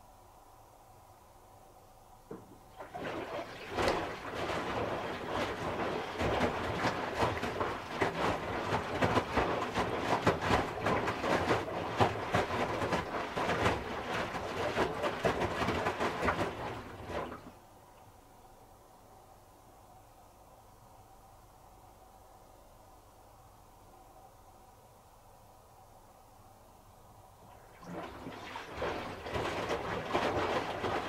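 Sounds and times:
clothes sloshing in water: 0:02.7 - 0:17.6, 0:27.5 - 0:31.0.

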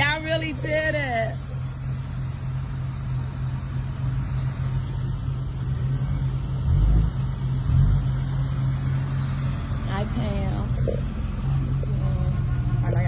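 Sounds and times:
street traffic engine drone: 0:00.0 - 0:13.0.

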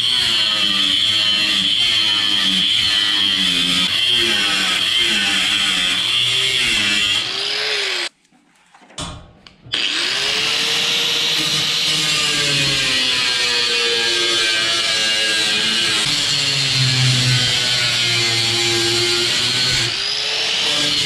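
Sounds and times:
power tool cutting sheet metal: 0:00.0 - 0:08.1, 0:09.7 - 0:21.0.

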